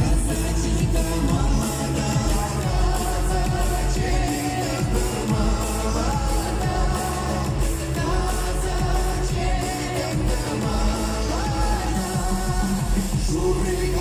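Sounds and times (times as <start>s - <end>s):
backing music with steady beat: 0.0s - 14.0s
man and woman singing: 0.0s - 14.0s.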